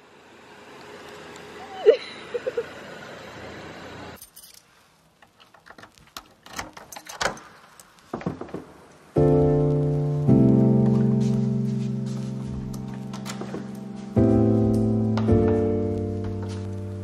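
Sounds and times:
outdoor background noise: 0:00.0 - 0:17.0
background music with held chords: 0:09.2 - 0:17.0.

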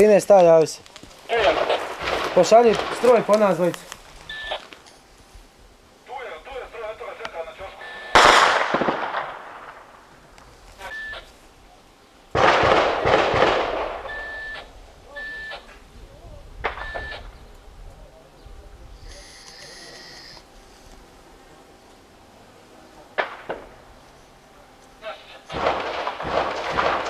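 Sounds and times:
loud gunshot echoing: 0:01.3 - 0:03.7, 0:08.1 - 0:10.0, 0:12.4 - 0:14.2, 0:23.2 - 0:23.8, 0:25.5 - 0:27.0
radio short high beeps: 0:04.3 - 0:04.6, 0:07.8 - 0:08.2, 0:10.8 - 0:11.3, 0:14.1 - 0:15.7, 0:16.8 - 0:17.3.

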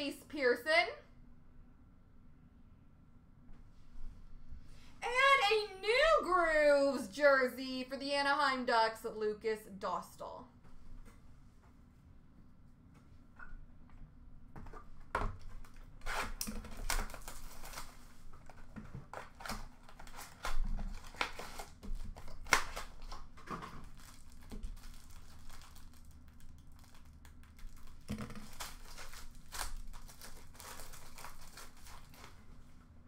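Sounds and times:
packaging crinkling: 0:15.4 - 0:32.6
card pack wrappers tearing: 0:15.6 - 0:32.4.

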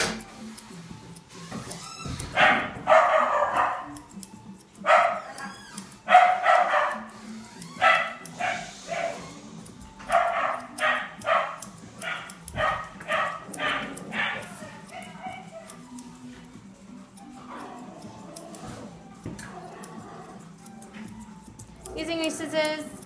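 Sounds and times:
dog barking: 0:02.3 - 0:04.0, 0:04.8 - 0:07.1, 0:07.8 - 0:09.4, 0:10.1 - 0:15.8.

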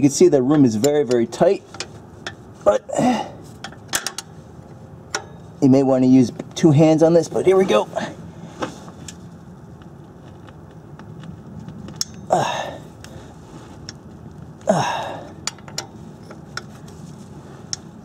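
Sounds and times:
steady low hum: 0:00.0 - 0:18.0
man grunting: 0:02.7 - 0:03.4, 0:12.3 - 0:12.8, 0:14.6 - 0:15.3.

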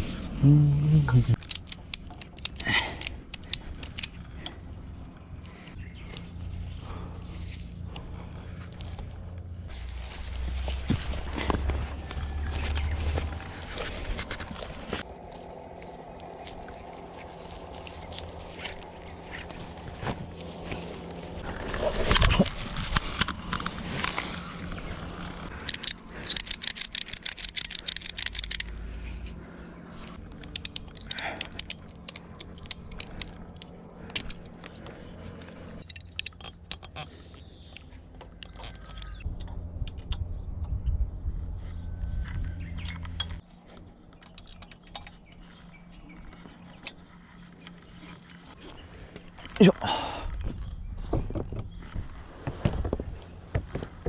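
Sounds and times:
low steady hum: 0:00.0 - 0:54.0
gear clattering and clicking: 0:01.4 - 0:07.0, 0:07.6 - 0:41.5, 0:42.2 - 0:49.8
fast rattling clicks: 0:25.6 - 0:28.8, 0:30.4 - 0:34.6.

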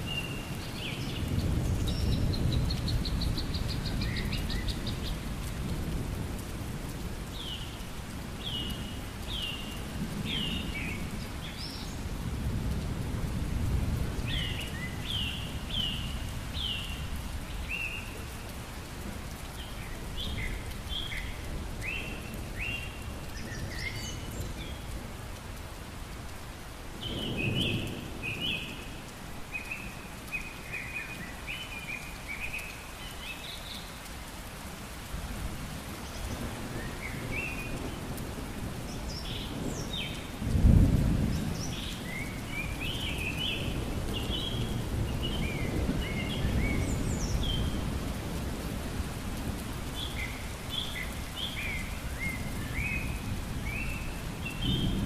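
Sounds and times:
steady rain: 0:00.0 - 0:55.0
low thunder rumbling: 0:38.6 - 0:49.6.

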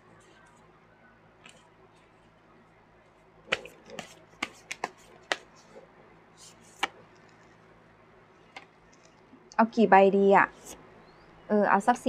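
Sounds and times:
cards clicking and snapping: 0:03.5 - 0:05.6
faint brushing: 0:06.4 - 0:07.6.

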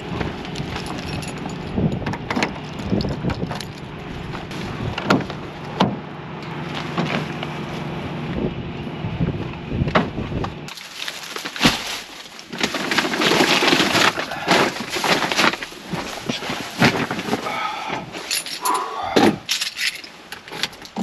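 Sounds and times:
diesel truck engine idling: 0:00.0 - 0:10.8.

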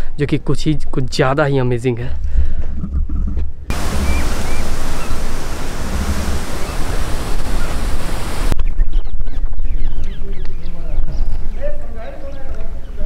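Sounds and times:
wind buffeting microphone: 0:02.8 - 0:13.0.

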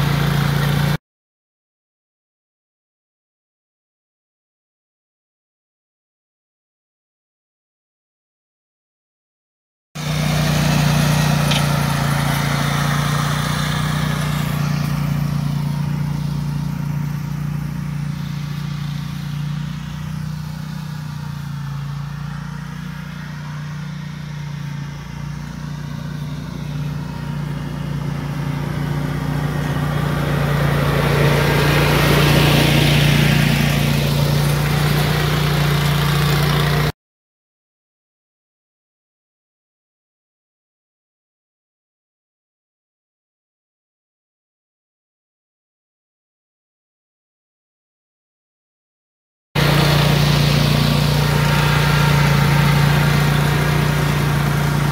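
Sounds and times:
mower engine running: 0:00.0 - 0:01.0, 0:10.0 - 0:36.9, 0:49.6 - 0:54.9.

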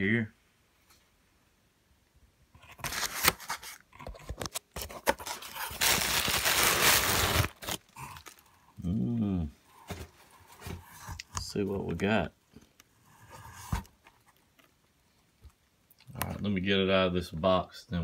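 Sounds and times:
plastic wrap crinkling: 0:02.8 - 0:08.6.

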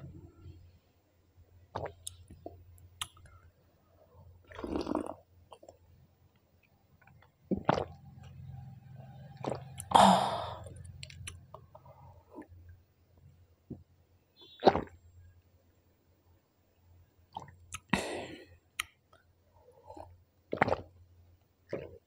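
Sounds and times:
person puffing breath: 0:09.9 - 0:10.7, 0:17.9 - 0:18.6.

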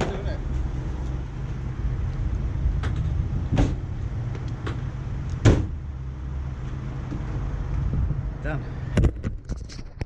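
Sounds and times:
van door slamming: 0:02.8 - 0:03.9, 0:05.4 - 0:05.8.

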